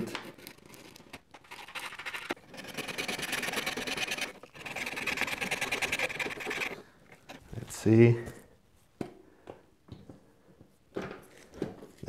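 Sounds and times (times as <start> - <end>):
hand sanding metal: 2.7 - 7.4.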